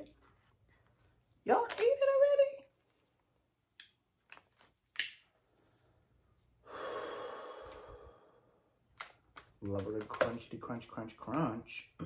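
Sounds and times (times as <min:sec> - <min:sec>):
man breathing out: 0:06.6 - 0:08.7.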